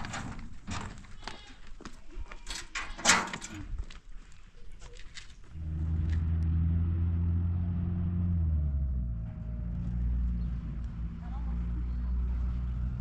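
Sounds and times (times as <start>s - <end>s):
vehicle engine humming: 5.5s - 13.0s.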